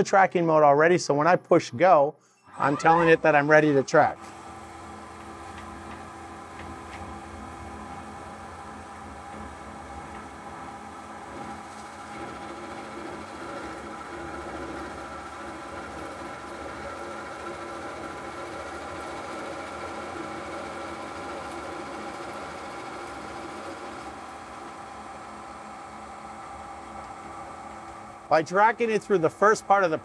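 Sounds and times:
spindle drive humming: 2.4s - 30.0s
lathe cutting metal bar: 2.5s - 6.4s, 10.7s - 25.4s.

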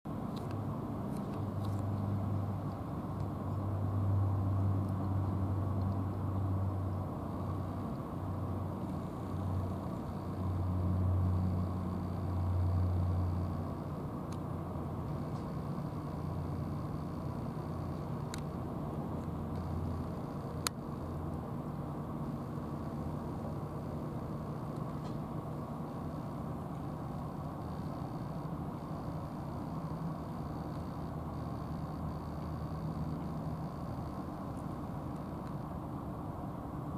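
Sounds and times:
low engine hum: 0.1s - 36.9s.

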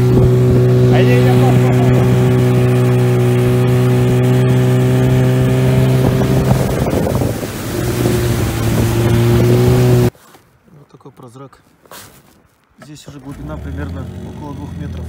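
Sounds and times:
outboard motor running: 0.0s - 10.1s, 13.2s - 15.0s.

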